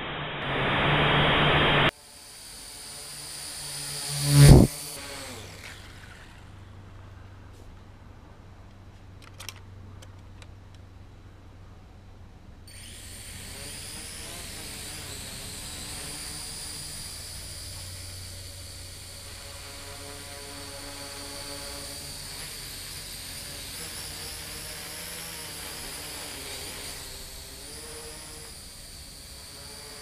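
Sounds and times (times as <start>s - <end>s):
quadcopter motors whining: 0.6s - 7.1s, 12.7s - 30.0s.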